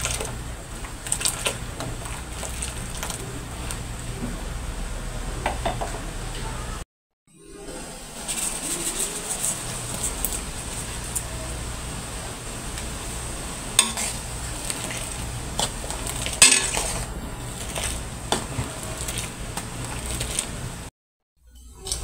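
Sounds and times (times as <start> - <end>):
coconut milk simmering: 0.0 - 5.1, 8.2 - 20.9
ladle scraping and knocking pan: 13.8 - 20.2.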